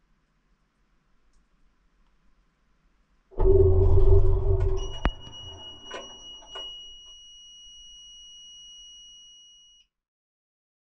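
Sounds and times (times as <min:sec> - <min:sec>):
faint clicks: 0:01.3 - 0:02.2
washing machine drum running: 0:03.4 - 0:06.7
washing machine beeper tone: 0:03.4 - 0:09.8.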